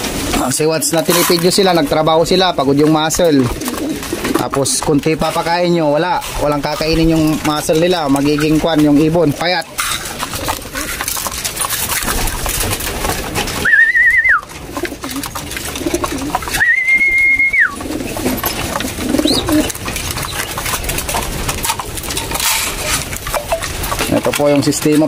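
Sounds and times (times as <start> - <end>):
pigeons cooing: 0.0 - 24.4
high whistled tones: 13.6 - 14.5, 16.5 - 17.8.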